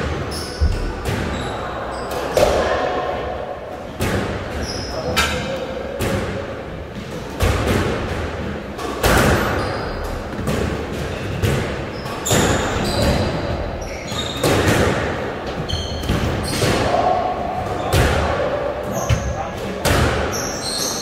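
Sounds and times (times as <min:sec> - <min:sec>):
squash ball hits echoing: 0:00.0 - 0:20.6
shoes squeaking on wooden floor: 0:15.6 - 0:16.6.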